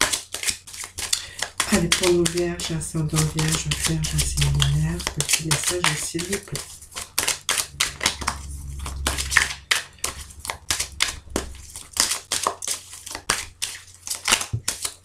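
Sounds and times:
cards being shuffled: 0:00.0 - 0:08.2, 0:10.1 - 0:15.0.

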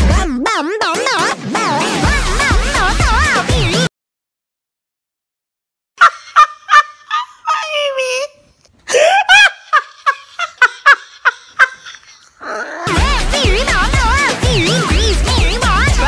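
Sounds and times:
woman yelping: 0:07.1 - 0:09.6.

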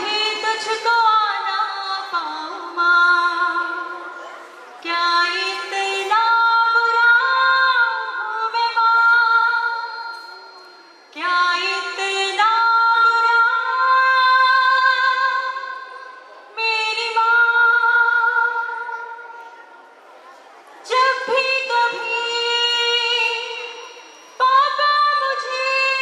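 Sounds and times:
woman singing slow melody: 0:04.8 - 0:15.8, 0:20.9 - 0:26.0.

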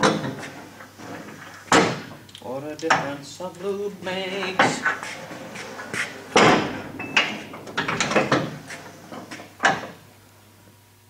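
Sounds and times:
metal clanks and knocks: 0:00.0 - 0:02.2, 0:04.4 - 0:10.0.

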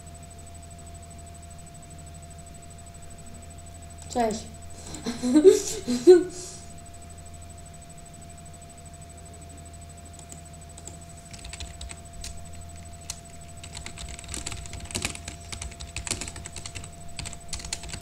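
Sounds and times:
electrical hum: 0:00.0 - 0:18.0
computer keyboard typing: 0:10.2 - 0:18.0.

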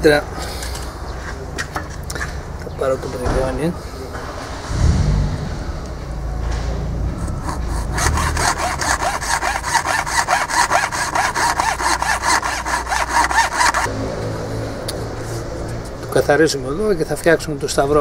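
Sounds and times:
hand saw cutting plastic: 0:07.4 - 0:13.9.

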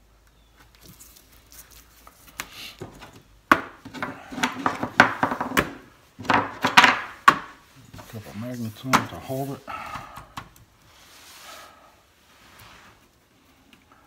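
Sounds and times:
paper rustling: 0:00.6 - 0:03.1.

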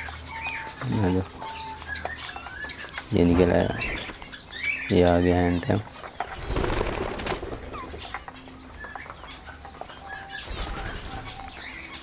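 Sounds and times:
bird chirps: 0:00.0 - 0:12.0
parakeet wings flapping: 0:06.0 - 0:08.2.

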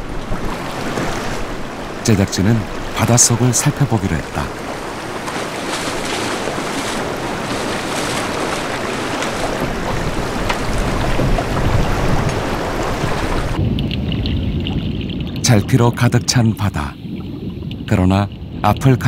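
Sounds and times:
sea water rushing: 0:00.0 - 0:19.0
wind: 0:00.0 - 0:19.0
muffled underwater rumble: 0:09.6 - 0:19.0.

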